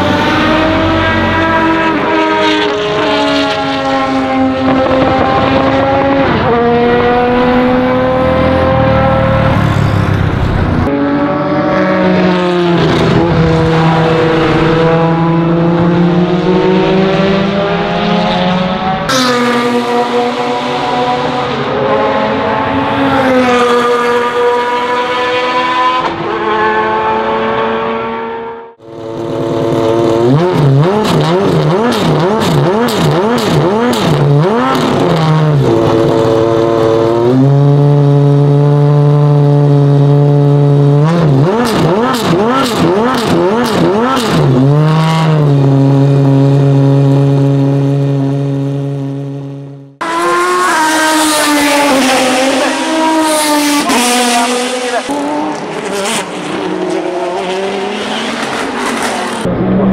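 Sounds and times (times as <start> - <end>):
race car engine revving: 0.0 - 59.9.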